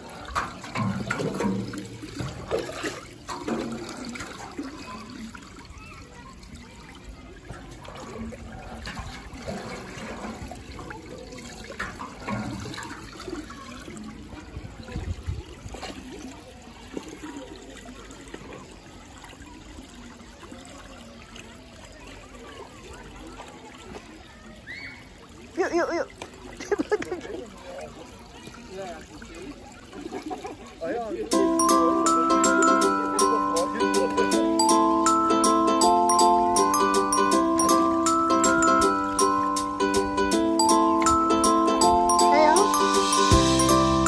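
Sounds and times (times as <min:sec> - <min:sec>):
water trickling and running: 0:00.0 - 0:44.0
light knocks and splashes: 0:00.3 - 0:04.8.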